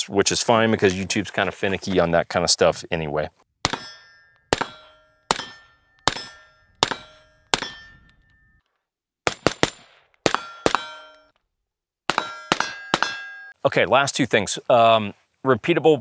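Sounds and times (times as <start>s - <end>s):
suppressed rifle shots: 3.6s - 7.9s, 9.2s - 11.0s
bullet striking steel target: 3.6s - 8.6s, 9.2s - 11.3s, 12.1s - 13.6s.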